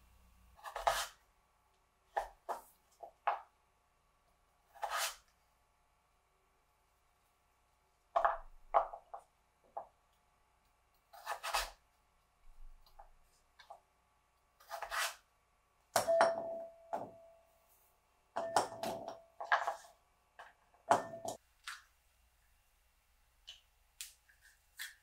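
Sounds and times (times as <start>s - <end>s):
knife scraping wooden board: 0.6s - 1.2s, 4.7s - 5.3s, 11.1s - 11.8s, 14.6s - 15.3s.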